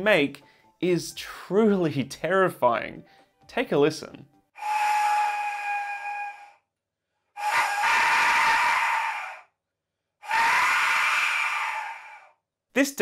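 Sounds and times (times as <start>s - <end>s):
death whistle shrieking: 4.6s - 6.7s, 7.4s - 9.6s, 10.2s - 12.4s.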